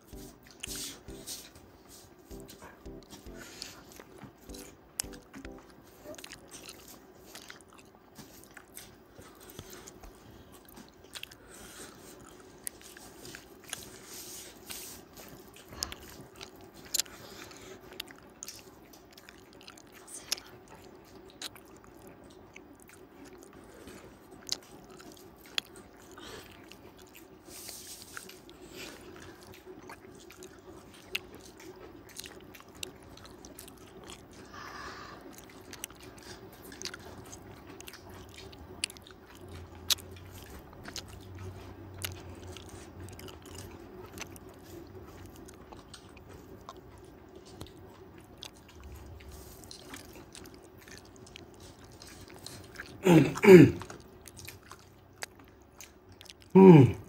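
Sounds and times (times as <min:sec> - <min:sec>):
steady low hum: 0:00.0 - 0:06.8
person chewing and biting food: 0:00.0 - 0:57.0.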